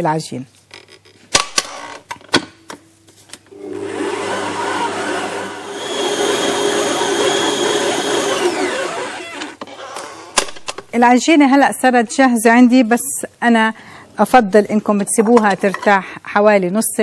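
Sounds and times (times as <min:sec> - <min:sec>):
stand mixer motor whining: 0:03.5 - 0:09.6.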